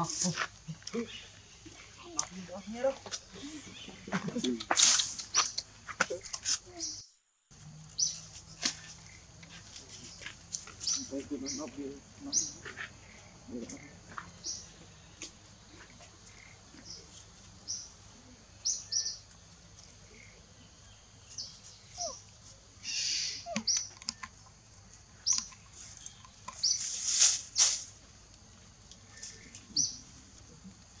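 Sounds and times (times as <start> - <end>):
rustling of dry bamboo and leaves: 0.0 - 6.9, 7.5 - 23.2, 24.8 - 31.0
high monkey chirps: 3.1 - 7.1, 10.0 - 24.5, 25.1 - 27.9, 29.0 - 30.6.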